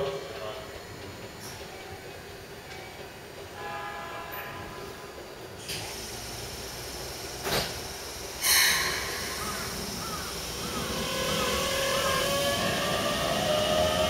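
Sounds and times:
train motor tone: 2.7s - 14.0s
hissing air burst: 5.7s - 13.9s.

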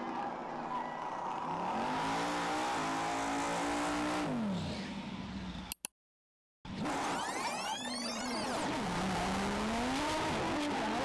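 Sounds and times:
car engine accelerating hard: 1.0s - 4.7s, 8.5s - 11.0s.

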